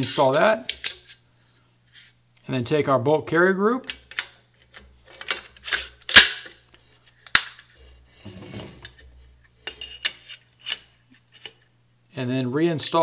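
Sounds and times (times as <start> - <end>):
metal scraping: 7.8 - 10.8.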